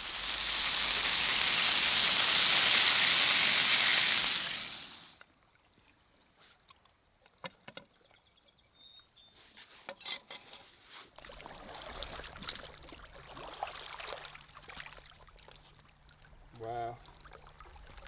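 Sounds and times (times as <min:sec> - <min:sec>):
water sloshing and trickling: 0:09.8 - 0:18.0.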